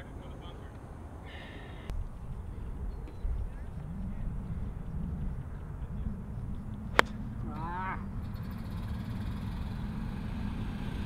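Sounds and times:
steady low rumble: 0.0 - 9.3
golf club striking ball: 6.4 - 8.6
wavering pitched call: 7.3 - 9.6.

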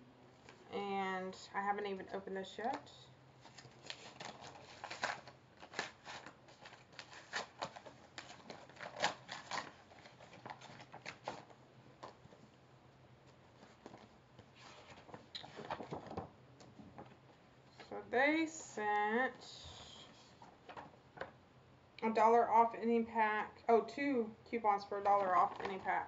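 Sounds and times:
paper tearing and rustling: 3.4 - 12.2, 13.6 - 16.3.

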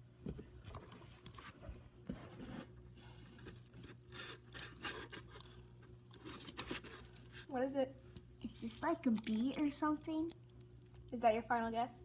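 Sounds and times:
garlic scraping on cardboard: 3.4 - 5.6.

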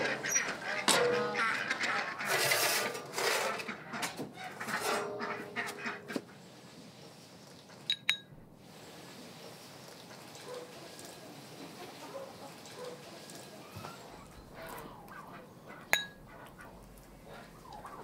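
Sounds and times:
farmyard fowl calling: 0.0 - 6.4, 10.6 - 18.0.

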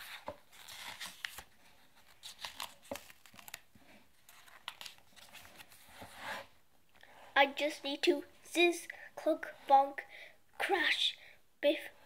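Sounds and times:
paper pages rustling: 0.0 - 6.4.

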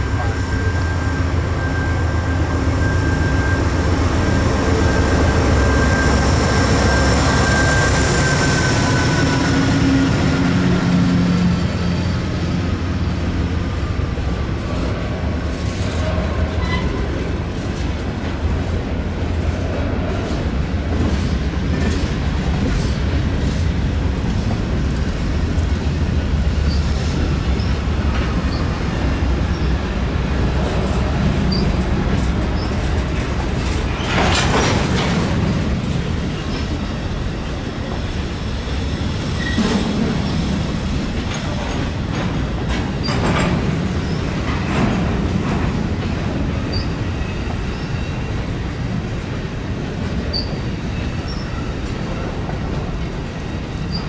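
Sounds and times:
train rumble: 0.0 - 54.0
train wheels clicking over rail joints: 14.8 - 54.0.

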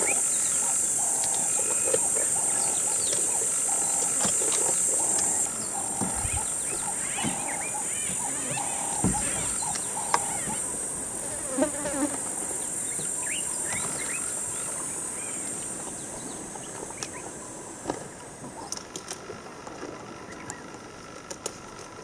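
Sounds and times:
high-pitched insect drone: 0.0 - 16.5.

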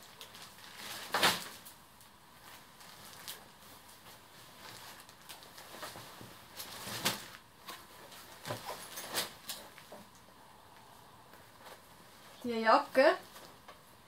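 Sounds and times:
plastic bag crinkling: 0.0 - 9.9
fabric rustling: 0.0 - 14.0.

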